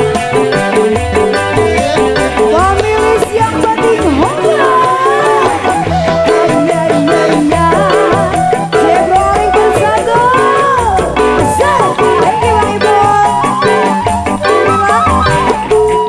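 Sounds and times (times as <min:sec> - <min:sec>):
live band playing: 0:00.0 - 0:16.0
bamboo flute melody: 0:03.2 - 0:16.0.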